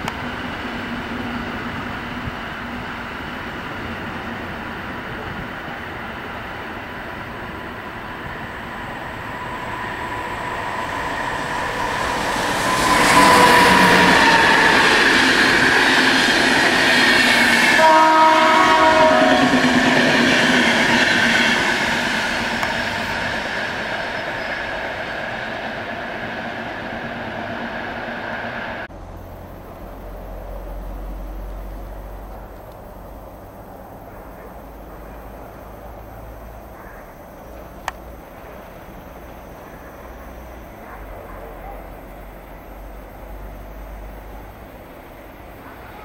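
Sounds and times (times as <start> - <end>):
train wheels rushing on rail: 0.0 - 46.0
train whine: 0.0 - 46.0
train horn blast: 11.2 - 15.9, 17.6 - 20.3.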